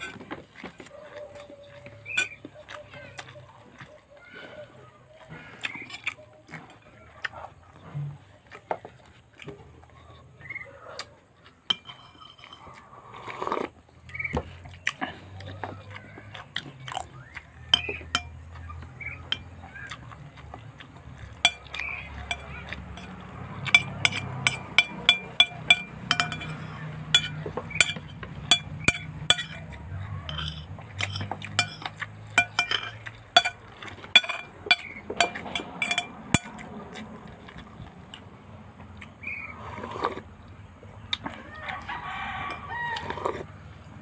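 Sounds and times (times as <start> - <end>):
person chewing food: 0.0 - 44.0
clinks against a plate: 2.0 - 2.6, 11.7 - 12.8, 17.7 - 19.9, 21.4 - 36.7.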